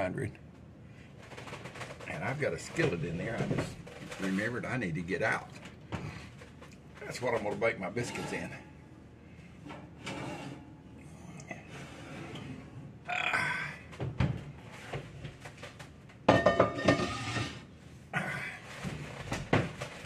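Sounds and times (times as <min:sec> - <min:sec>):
knocks and scrapes: 0:01.2 - 0:04.8, 0:06.0 - 0:08.8, 0:16.5 - 0:17.6.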